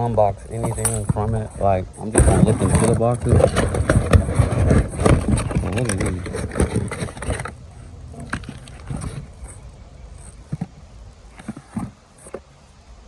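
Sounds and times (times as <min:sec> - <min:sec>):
cardboard and plastic rummaging: 0:00.5 - 0:10.8.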